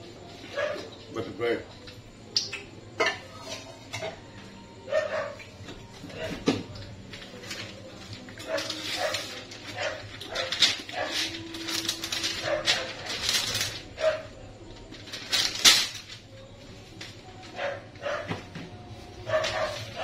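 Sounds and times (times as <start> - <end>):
wax paper crinkling: 7.1 - 14.0, 14.8 - 17.5.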